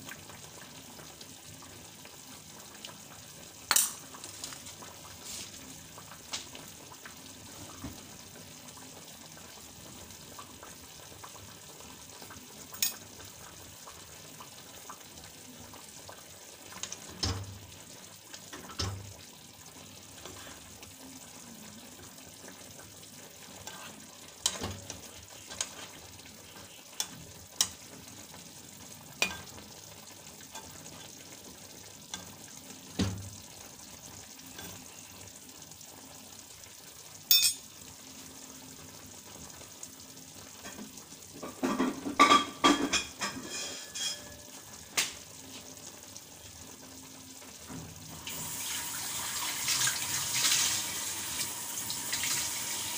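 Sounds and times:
food sizzling in a pan: 0.0s - 52.9s
metal spoon clinking against pan: 37.3s - 37.6s, 42.3s - 44.4s.

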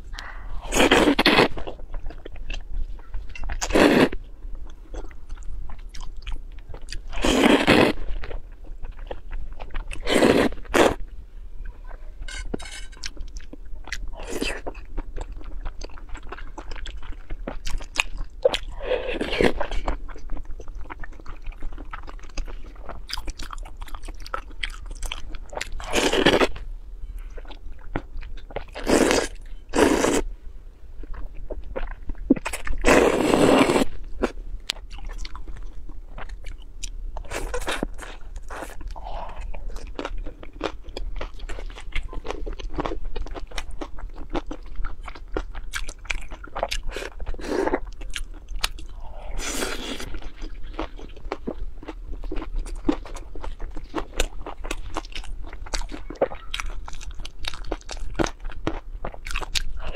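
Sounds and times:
wet chewing and crunchy bites: 12.4s - 26.7s, 31.0s - 59.9s
slurping noodles: 32.9s - 33.9s.

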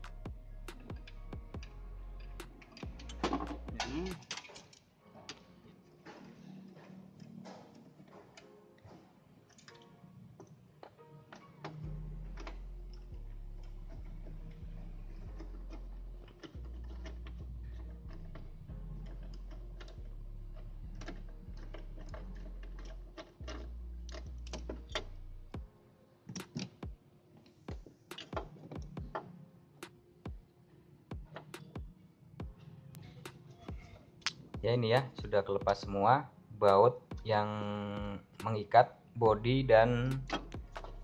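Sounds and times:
background music with deep bass: 0.0s - 4.4s, 11.1s - 27.0s, 31.1s - 38.6s, 39.2s - 41.0s
clicks and taps of tools: 28.1s - 29.1s.

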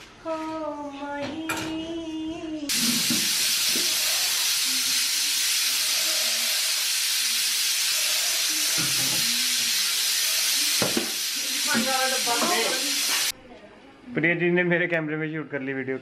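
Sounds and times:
pressure cooker steam hissing: 2.7s - 13.3s.

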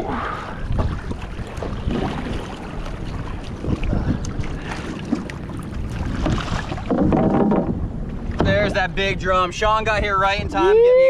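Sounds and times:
water sloshing and splashing: 0.0s - 9.8s
wind buffeting microphone: 0.0s - 11.0s
uneven knocks: 6.2s - 7.8s.

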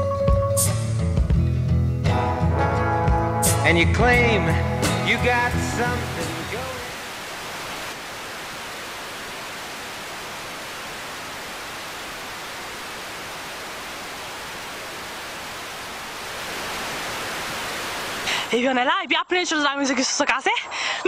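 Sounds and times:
tv static hiss: 4.8s - 18.7s.

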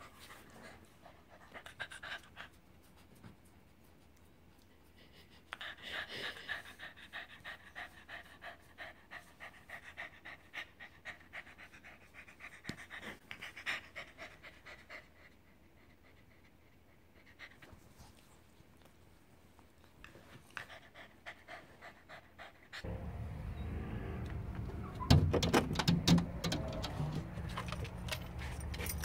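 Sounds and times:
dog panting: 0.0s - 18.6s, 19.8s - 22.9s.

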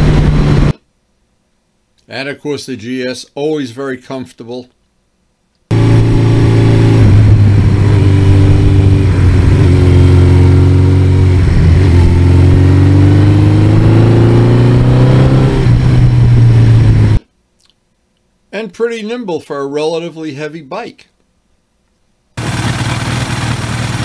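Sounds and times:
motorcycle engine accelerating: 0.0s - 0.8s, 5.7s - 17.2s, 22.4s - 24.0s.

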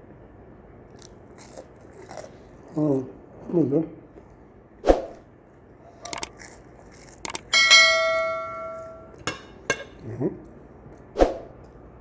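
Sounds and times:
crunchy bite into fry: 0.9s - 2.5s
clicks: 6.0s - 6.3s
bell chime: 7.6s - 9.2s.

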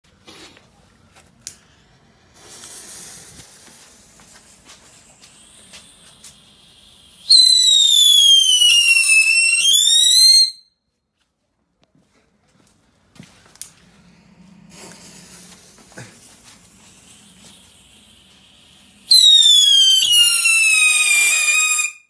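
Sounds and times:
firework hissing: 1.6s - 10.6s, 13.8s - 22.0s
firework crackle: 2.3s - 10.6s, 14.7s - 22.0s
firework whistling: 2.3s - 10.8s, 13.8s - 22.0s.

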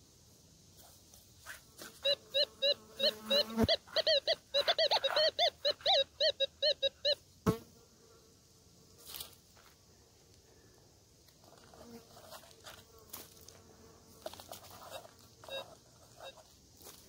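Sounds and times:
metal detector warbling beeps: 2.0s - 7.2s, 14.9s - 16.4s.

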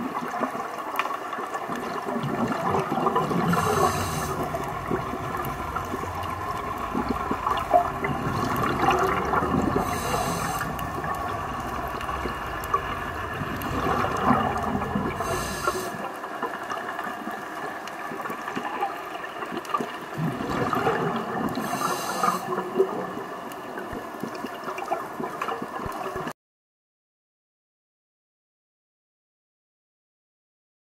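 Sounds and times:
underwater water noise: 0.0s - 26.3s
scuba bubbles hissing: 1.7s - 16.2s, 20.1s - 23.4s
low rumble: 2.3s - 16.2s.

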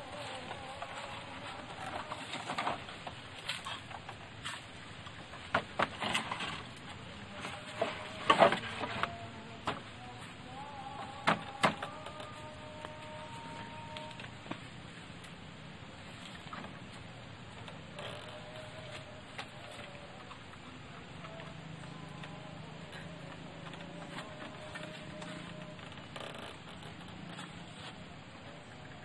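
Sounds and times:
bamboo poles knocking together: 0.1s - 10.0s, 11.0s - 14.6s.

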